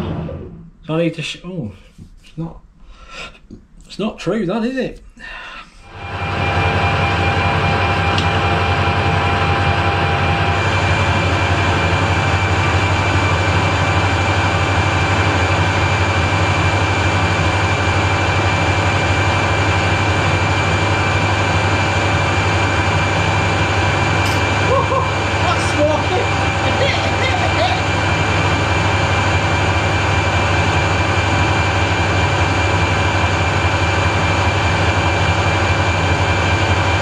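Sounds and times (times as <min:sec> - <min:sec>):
high gear whine: 0:05.8 - 0:37.0
metal lathe motor hum: 0:05.9 - 0:37.0.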